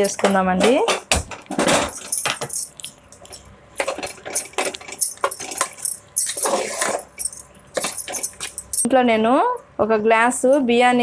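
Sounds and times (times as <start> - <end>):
ladle scraping a pot: 5.4 - 7.2.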